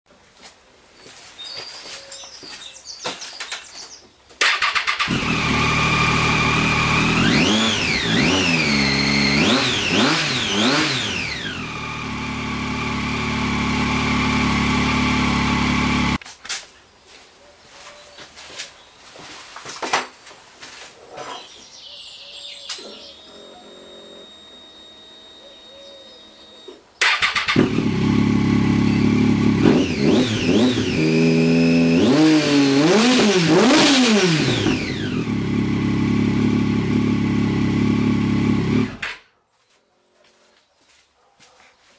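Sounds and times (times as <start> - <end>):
motorcycle engine revving and idling: 4.4 - 16.2, 22.8 - 39.2.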